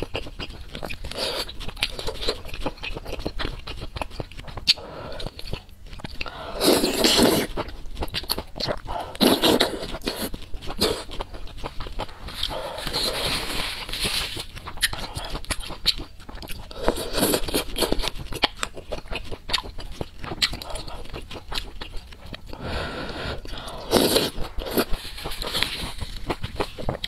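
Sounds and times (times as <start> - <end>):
chewing: 0.0 - 27.0
noodles slurped: 6.2 - 7.6, 8.6 - 11.2, 23.4 - 26.1.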